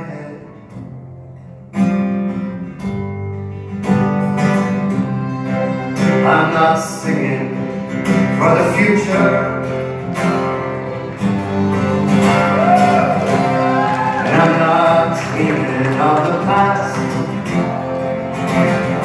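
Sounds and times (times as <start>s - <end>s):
acoustic guitar strummed: 0.0s - 19.0s.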